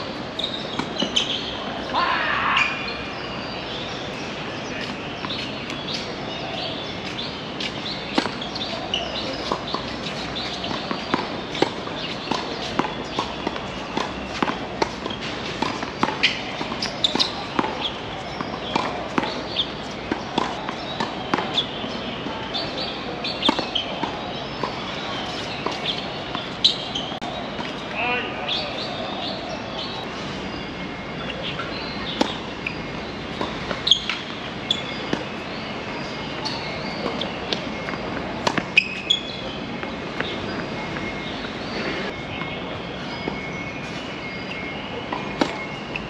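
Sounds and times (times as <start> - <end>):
tennis balls bouncing on court: 0.4 - 2.0, 6.8 - 28.0, 31.2 - 42.6, 43.3 - 46.0
tennis balls struck by rackets: 7.3 - 28.0, 31.4 - 41.8, 45.1 - 45.7.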